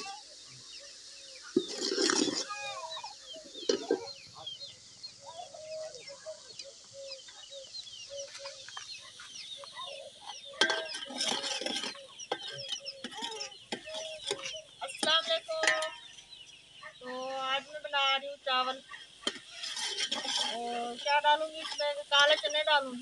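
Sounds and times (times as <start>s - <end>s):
chickens clucking: 0.0s - 17.5s
small birds chirping: 0.0s - 23.0s.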